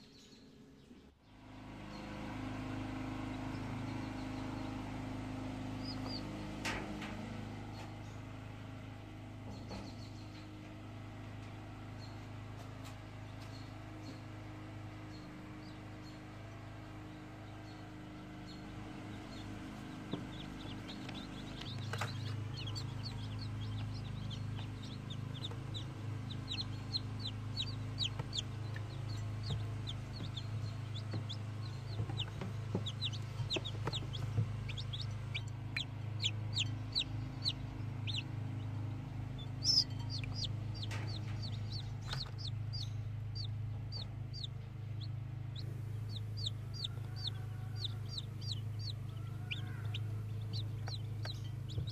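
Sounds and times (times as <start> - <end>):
chicks peeping: 0.0 - 1.1, 1.7 - 51.9
low hum: 0.0 - 51.9.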